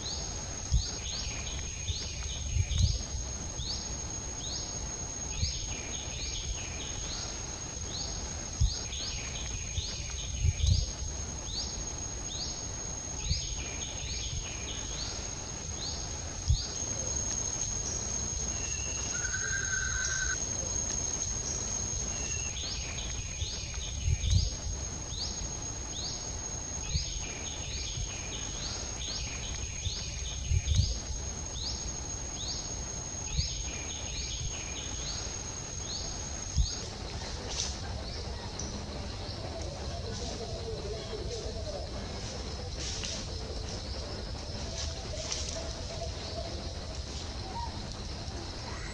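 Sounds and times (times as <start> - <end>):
high-pitched insect whine: 0.0 - 48.9
bird chirps: 15.8 - 24.5
short whistled bird call: 18.6 - 20.4.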